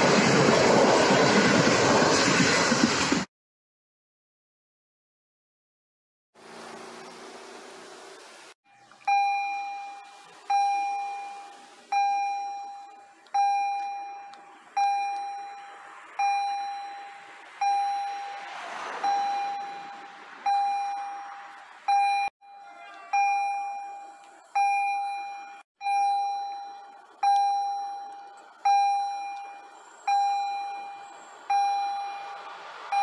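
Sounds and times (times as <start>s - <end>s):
level crossing warning bell: 8.7s - 33.0s
car passing: 13.4s - 24.0s, 28.4s - 33.0s.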